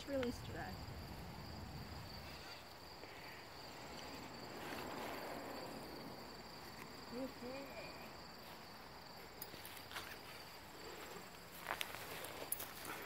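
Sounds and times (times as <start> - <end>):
insects chirring: 0.0 - 13.0
soft rustle: 8.4 - 13.0.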